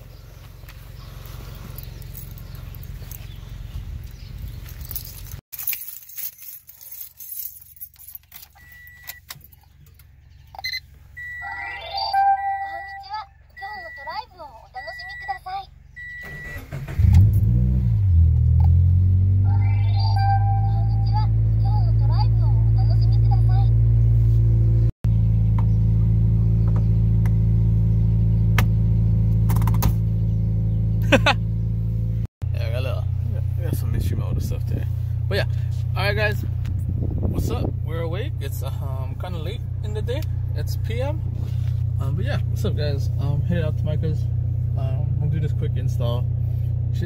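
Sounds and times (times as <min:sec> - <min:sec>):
car engine idling: 0:00.0 - 0:05.4, 0:20.2 - 0:47.0
car keys jangling: 0:04.1 - 0:10.0
short high beep: 0:10.6 - 0:14.1, 0:19.6 - 0:21.2.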